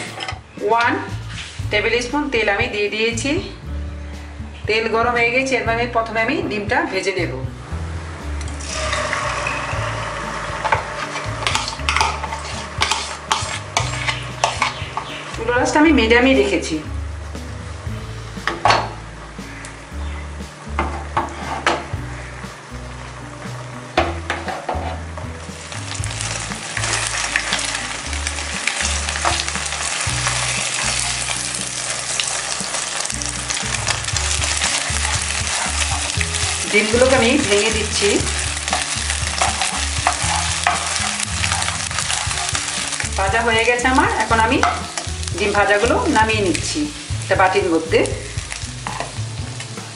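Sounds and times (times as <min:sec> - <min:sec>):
oil crackling and popping: 0:08.4 - 0:15.4, 0:24.0 - 0:49.9
egg sizzling in oil: 0:08.4 - 0:15.5, 0:22.2 - 0:49.9
plastic spatula scraping pan: 0:08.7 - 0:15.2.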